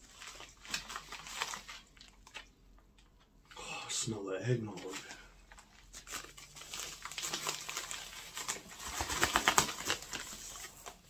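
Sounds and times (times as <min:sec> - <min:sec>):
bag crinkling and rustling: 0:00.0 - 0:02.5, 0:04.7 - 0:11.0.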